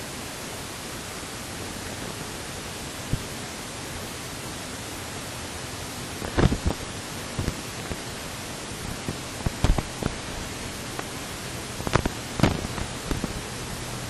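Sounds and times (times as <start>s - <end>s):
light aircraft engine rushing: 0.0s - 14.0s.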